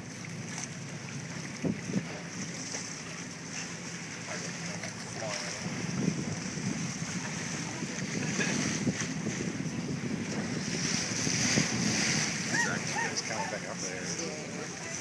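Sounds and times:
waves washing against boat hull: 0:00.0 - 0:15.0
wind buffeting microphone: 0:01.4 - 0:02.6, 0:05.1 - 0:15.0.

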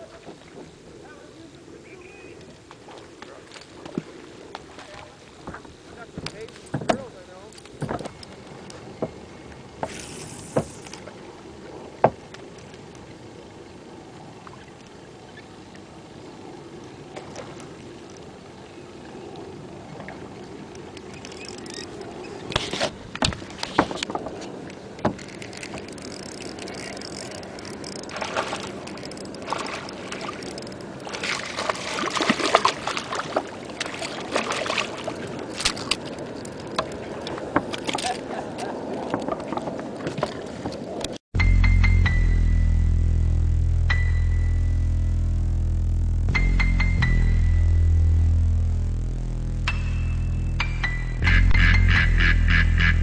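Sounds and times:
water lapping against boat hull: 0:00.0 - 0:41.2
splashes and bumps: 0:28.1 - 0:36.0.

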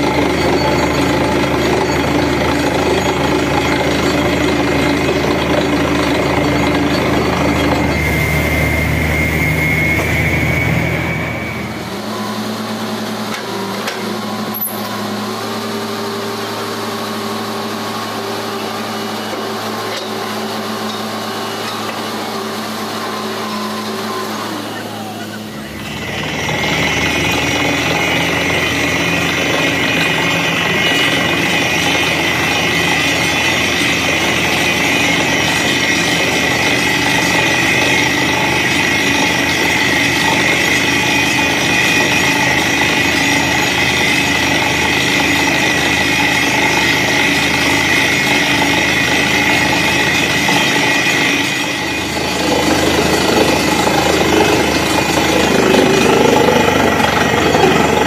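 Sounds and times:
steady high tone: 0:00.0 - 0:13.2, 0:18.7 - 0:58.0
drilling rig mechanical din: 0:00.0 - 0:58.0.

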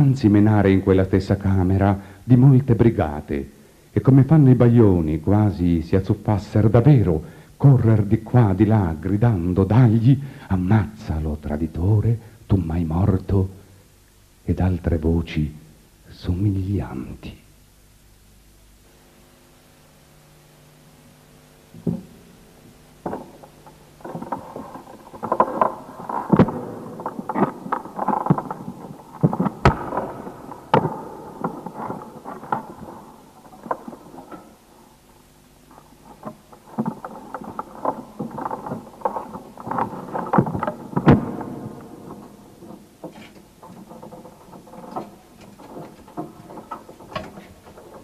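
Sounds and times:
low steady hum: 0:00.0 - 0:48.0
clattering knocks and scrapes: 0:23.0 - 0:48.0
sharp loud knocks: 0:24.0 - 0:34.4.

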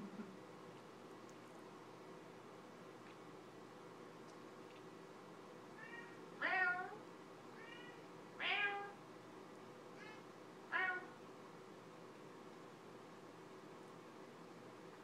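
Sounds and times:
cat meowing: 0:05.8 - 0:09.0, 0:10.0 - 0:11.2.

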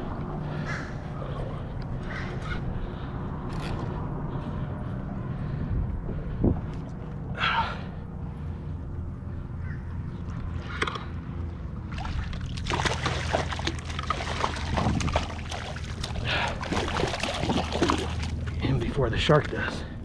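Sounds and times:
steady low hum: 0:00.0 - 0:20.0
water splashing against kayak: 0:11.9 - 0:18.6.

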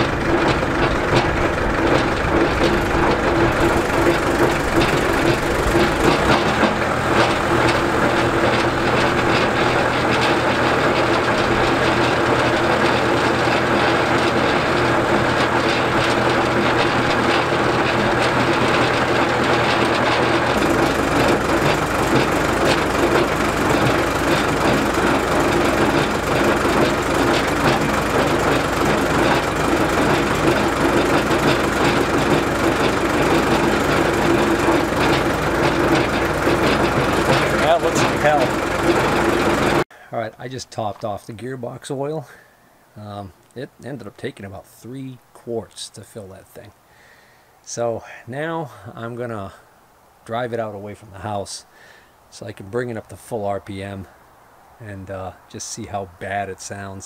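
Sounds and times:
rotary cutter rattling: 0:00.0 - 0:39.8
tractor engine running: 0:00.0 - 0:39.9.

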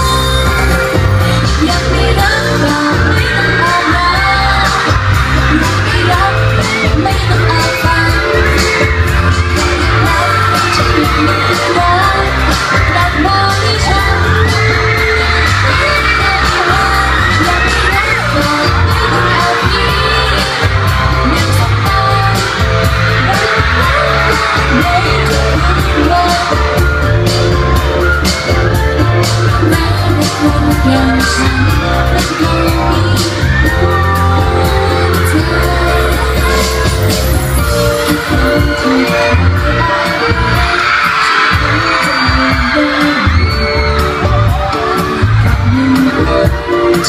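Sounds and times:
pop song over loudspeakers: 0:00.0 - 0:47.0
woman and man singing: 0:38.0 - 0:47.0.

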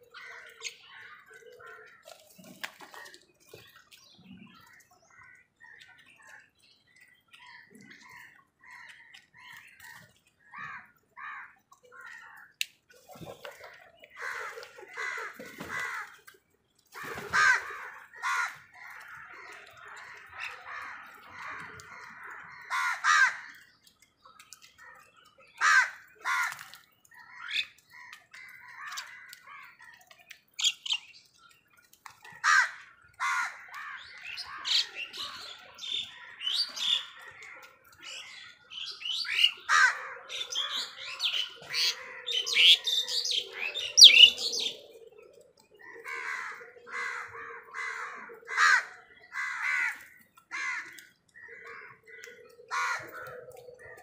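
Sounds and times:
crows cawing: 0:14.2 - 0:16.2, 0:17.0 - 0:23.6, 0:25.6 - 0:26.8, 0:32.3 - 0:37.6, 0:39.2 - 0:44.8, 0:45.7 - 0:54.0
mynas chirping and chattering: 0:34.2 - 0:50.0.

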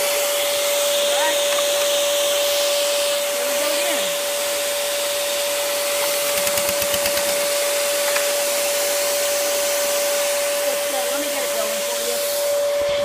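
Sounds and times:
compressed-air engine whine: 0:00.0 - 0:13.0
rapid pulsing: 0:06.1 - 0:07.6.

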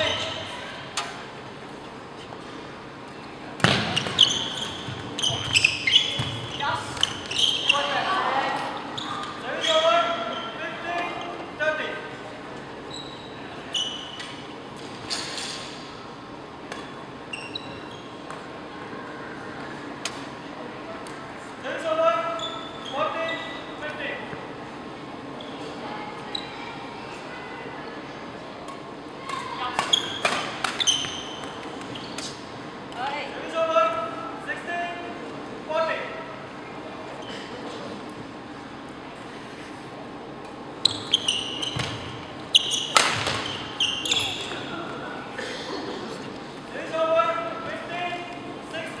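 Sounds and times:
sneakers squeaking on court floor: 0:00.0 - 0:00.8, 0:03.6 - 0:11.4, 0:12.8 - 0:15.9, 0:16.8 - 0:18.6, 0:22.2 - 0:23.9, 0:25.3 - 0:26.6, 0:29.2 - 0:32.5, 0:40.7 - 0:45.1
sports hall murmur: 0:00.0 - 0:49.0
shoes squeaking on wooden floor: 0:03.8 - 0:08.1, 0:29.8 - 0:32.4, 0:40.8 - 0:45.0
rackets hitting shuttlecock: 0:42.9 - 0:43.6.

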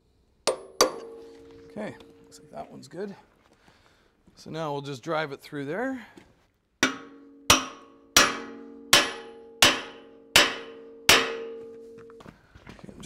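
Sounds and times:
hammer striking steel pin: 0:00.5 - 0:02.5, 0:06.8 - 0:12.2.

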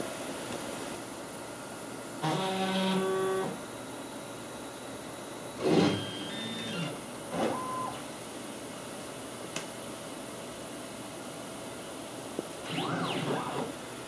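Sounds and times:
cnc router motors whining: 0:02.2 - 0:03.6, 0:05.6 - 0:08.0, 0:12.6 - 0:13.8.

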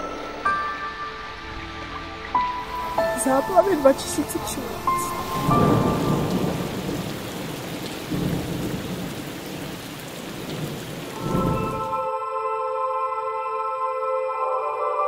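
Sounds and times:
soft ambient music: 0:00.0 - 0:08.4, 0:11.1 - 0:15.0
heavy rain: 0:01.2 - 0:12.1
rolling thunder: 0:05.2 - 0:12.0.

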